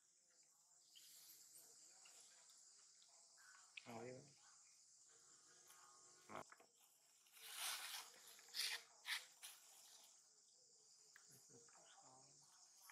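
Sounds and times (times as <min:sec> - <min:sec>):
insects droning: 0:00.0 - 0:12.9.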